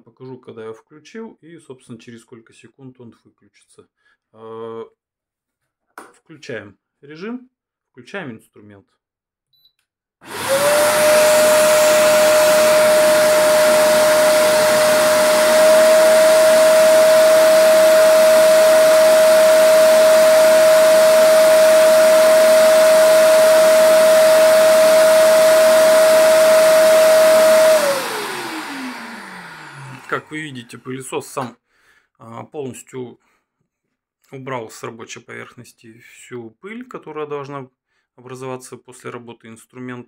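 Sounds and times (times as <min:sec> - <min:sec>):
vacuum cleaner motor whine: 0:10.2 - 0:30.7.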